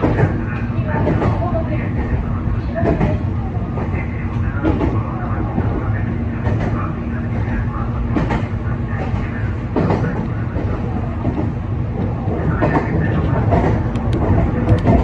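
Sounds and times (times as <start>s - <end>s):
clacks over rail joints: 0.0s - 0.4s, 2.8s - 3.2s, 4.6s - 5.0s, 8.1s - 15.0s
train wheels rumbling on rails: 0.0s - 15.0s.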